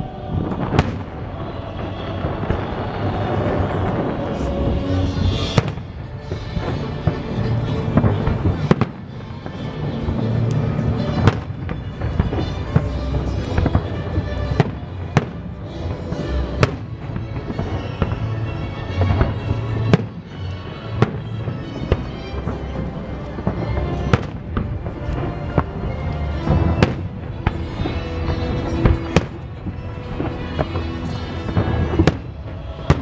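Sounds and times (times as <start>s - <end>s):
fireworks bursting: 0.0s - 33.0s
fireworks crackling: 0.0s - 33.0s
music playing: 0.0s - 33.0s.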